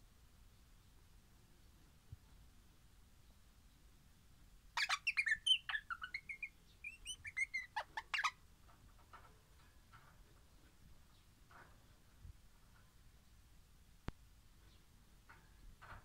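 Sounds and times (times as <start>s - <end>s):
parrot calling: 4.8s - 8.4s.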